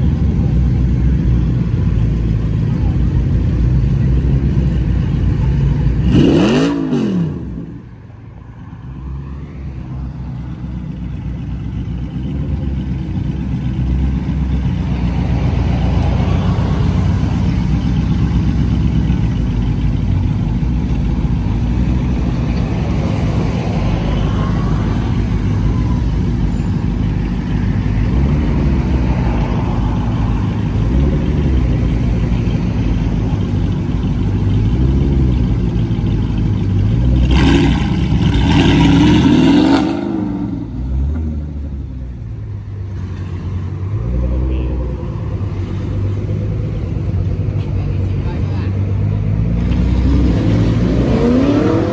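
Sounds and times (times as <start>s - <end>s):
car engine revving: 0.0s - 7.9s, 9.8s - 51.9s.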